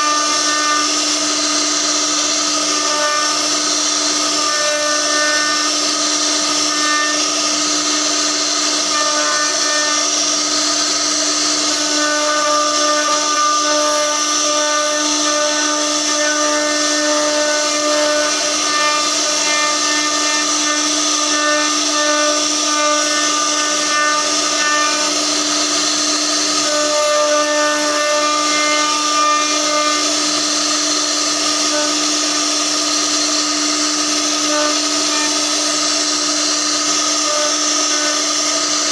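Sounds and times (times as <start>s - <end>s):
router spindle whining: 0.0s - 38.9s.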